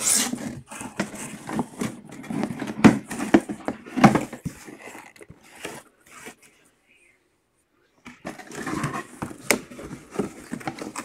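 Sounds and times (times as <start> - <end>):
cardboard box being handled: 8.3 - 11.0.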